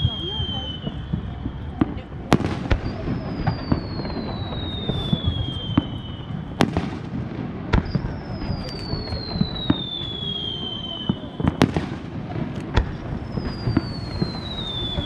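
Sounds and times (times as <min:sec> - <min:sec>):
firework whistles falling in pitch: 0:00.0 - 0:06.8, 0:07.8 - 0:11.8, 0:13.0 - 0:15.0.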